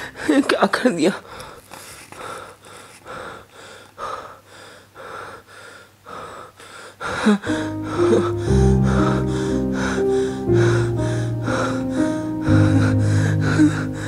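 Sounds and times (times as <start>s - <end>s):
music with low sustained notes: 0.0s - 0.6s, 7.5s - 14.0s
man gasping breaths: 1.2s - 14.0s.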